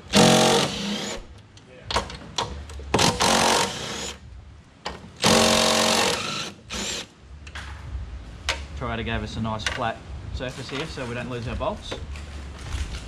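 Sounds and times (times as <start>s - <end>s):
impact driver hammering: 0.1s - 1.3s, 2.4s - 4.2s, 4.9s - 7.1s.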